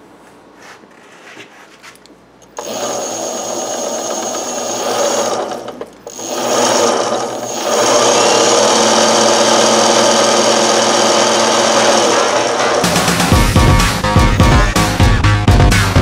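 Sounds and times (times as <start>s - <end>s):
electric motor whirring: 2.5s - 13.0s.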